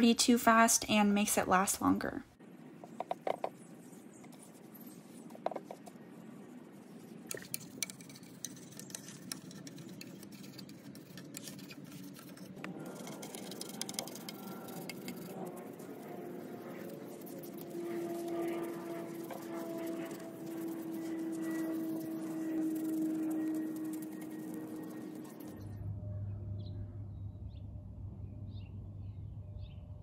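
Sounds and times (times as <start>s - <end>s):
small brush taps: 5.3s - 5.9s
damp rag rubbing wood: 9.6s - 25.6s.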